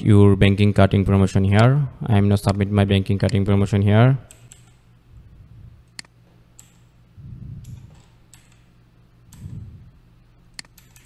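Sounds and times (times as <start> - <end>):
computer clicks: 4.3 - 4.8, 5.9 - 6.9, 7.6 - 8.7, 10.5 - 11.0.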